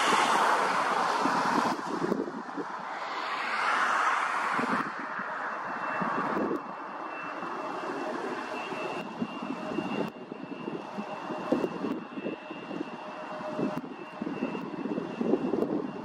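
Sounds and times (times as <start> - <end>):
wind buffeting microphone: 0.0 - 3.6, 4.2 - 16.0
jet engines with high fan whine: 0.0 - 16.0.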